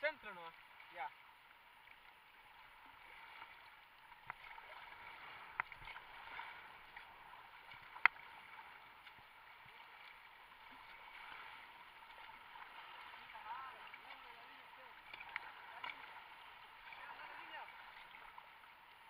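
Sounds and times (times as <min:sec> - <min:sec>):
water splashing along kayak hull: 0:00.0 - 0:19.0.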